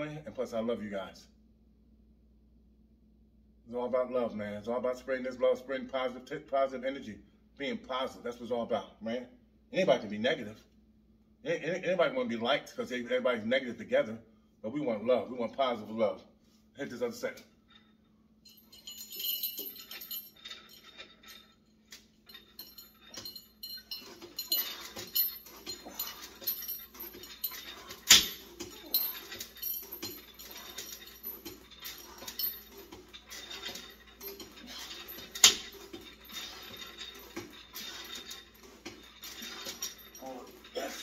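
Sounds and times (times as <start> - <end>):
cable running over pulleys: 18.5 - 41.0
weight stack clinking: 18.5 - 41.0
weight stack clanking: 18.6 - 41.0.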